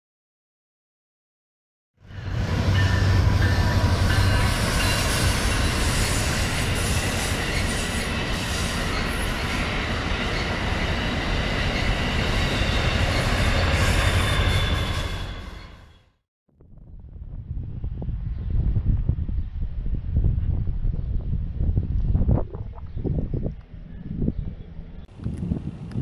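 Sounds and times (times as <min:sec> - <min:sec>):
diesel locomotive engine hum: 0:02.1 - 0:15.9.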